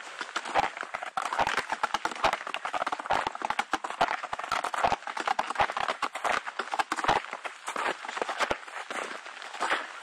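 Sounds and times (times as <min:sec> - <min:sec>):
footsteps crunching in snow: 0:07.1 - 0:10.0.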